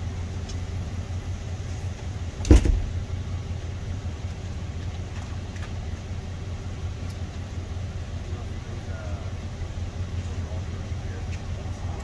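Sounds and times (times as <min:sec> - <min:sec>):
vehicle engine idling: 0:00.0 - 0:12.0
loud thump: 0:02.4 - 0:03.0.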